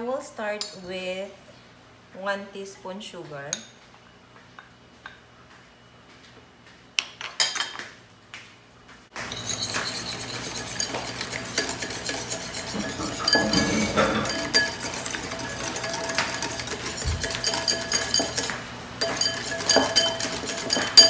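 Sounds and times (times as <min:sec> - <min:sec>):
whisk beating in glass bowl: 0:09.2 - 0:21.0
metal spoon clinking on glass: 0:09.3 - 0:21.0.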